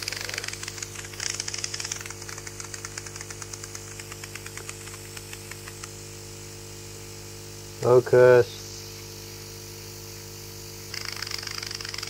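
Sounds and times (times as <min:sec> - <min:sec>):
spray nozzle hissing and sputtering: 0:00.0 - 0:06.2, 0:08.4 - 0:12.0
air pump humming: 0:00.0 - 0:12.0.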